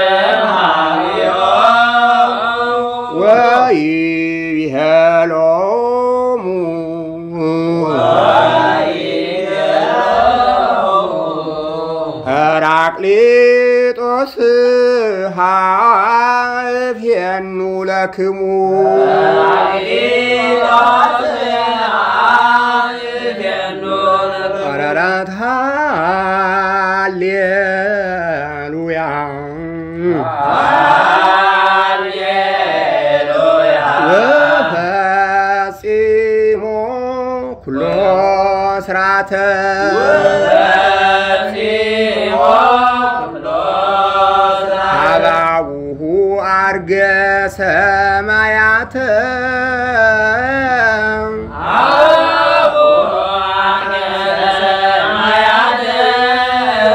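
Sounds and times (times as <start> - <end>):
person chanting: 0.0 - 56.9.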